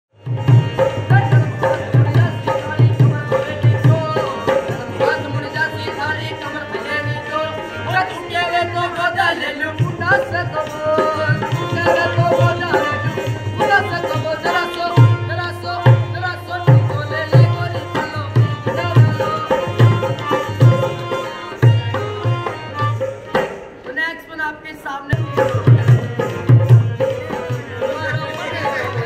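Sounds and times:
hand drum beating: 25.2s - 29.0s.

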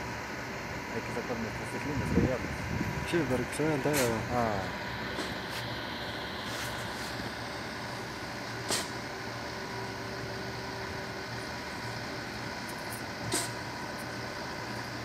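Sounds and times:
diesel machinery droning: 0.0s - 15.0s
sharp hiss: 8.6s - 9.1s, 13.2s - 13.7s.

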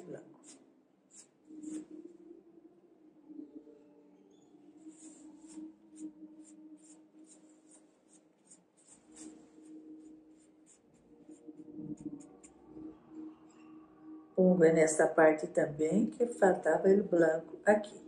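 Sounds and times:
paintbrush scratching on fabric: 0.4s - 2.0s, 4.8s - 12.5s.

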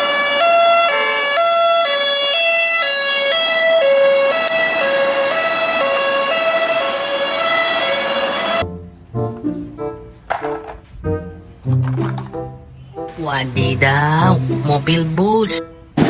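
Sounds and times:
police two-tone siren: 0.0s - 8.6s.

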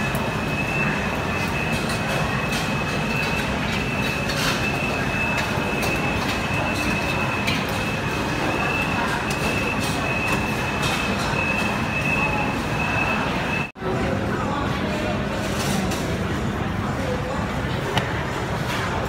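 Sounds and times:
food court din: 0.0s - 19.0s.

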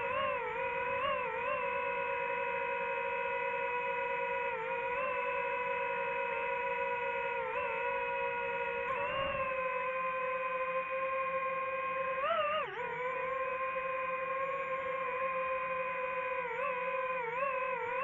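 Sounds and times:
drone propellers whining: 0.0s - 18.0s.

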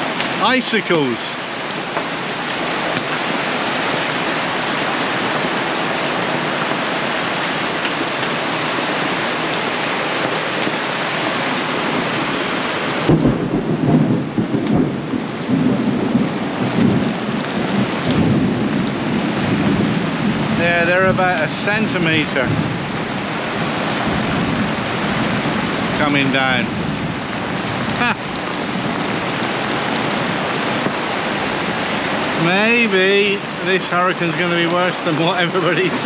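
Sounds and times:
heavy rain and hail on canvas: 0.0s - 36.0s
rumble of thunder: 13.0s - 31.8s.

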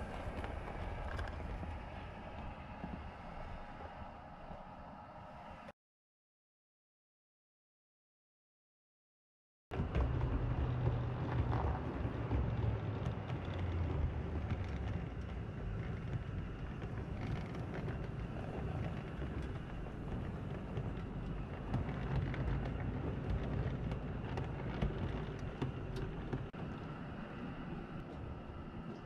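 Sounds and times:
model train wheels rumbling: 9.8s - 29.0s.

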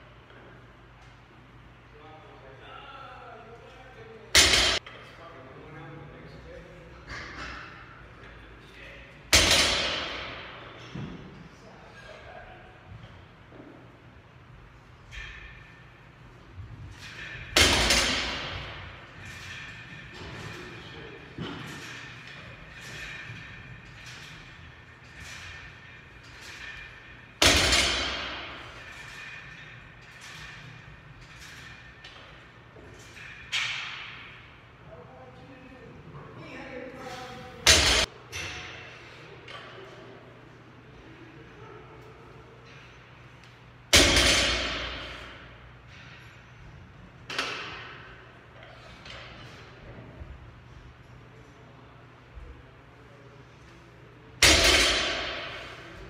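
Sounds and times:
barbell dropped on floor: 9.3s - 11.2s, 17.0s - 19.6s, 27.4s - 29.0s, 43.9s - 45.3s, 54.4s - 55.8s
bar and plates ringing: 17.0s - 34.4s.

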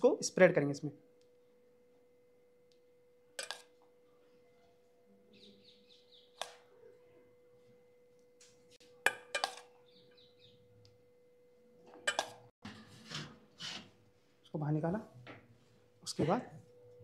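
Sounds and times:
metal spoon clinking on steel bowl: 3.4s - 3.7s, 9.0s - 9.7s, 12.0s - 12.5s
faint steady tone: 9.7s - 12.5s.

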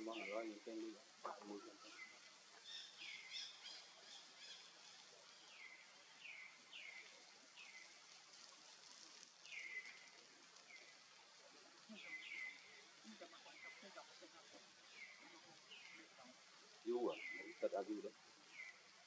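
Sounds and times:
high chirping calls: 0.0s - 8.0s, 11.8s - 16.3s, 16.9s - 18.9s
faint hiss: 0.0s - 19.0s.

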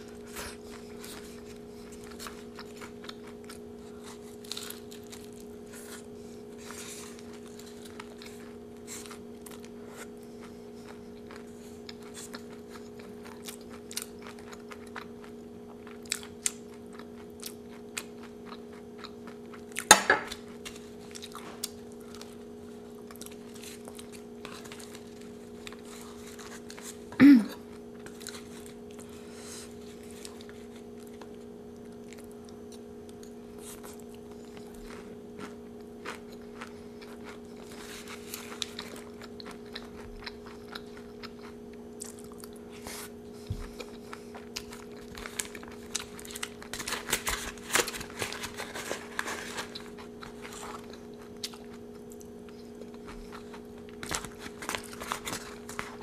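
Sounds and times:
chewing and crunching: 0.0s - 56.0s
steady low hum: 0.0s - 56.0s
foil wrap rustling: 44.8s - 50.9s, 54.0s - 56.0s.

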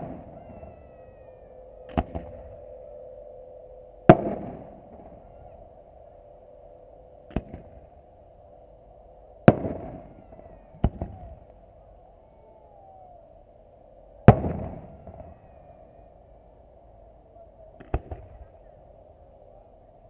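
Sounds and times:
steady low hum: 0.0s - 20.0s
firework bangs: 9.4s - 11.3s, 14.3s - 15.2s.

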